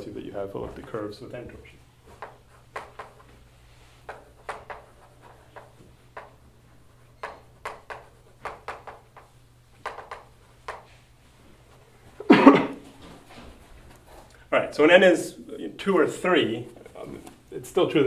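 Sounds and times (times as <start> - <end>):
low room hum: 0.0 - 18.0
chalk tapping and scratching: 2.1 - 11.0.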